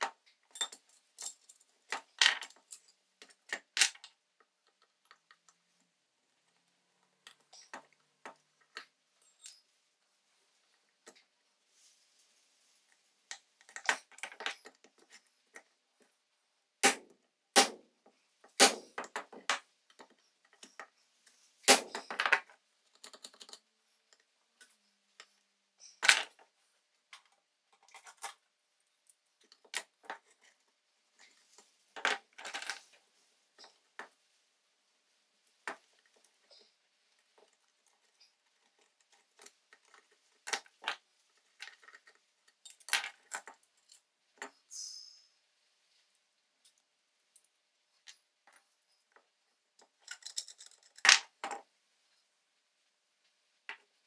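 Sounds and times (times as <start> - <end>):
metal tools clinking on workbench: 0.5 - 4.0.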